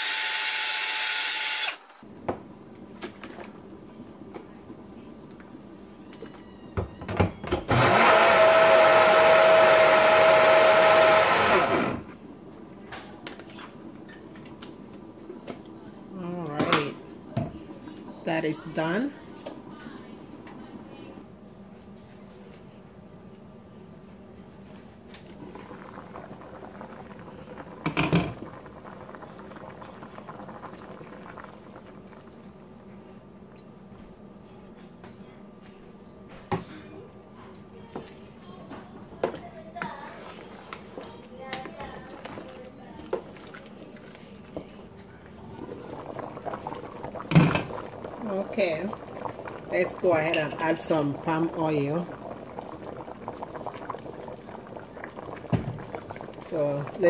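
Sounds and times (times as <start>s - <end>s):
blender motor running: 0.0s - 1.9s, 7.6s - 12.0s
pot bubbling: 2.5s - 21.1s, 24.2s - 34.3s, 39.2s - 57.0s.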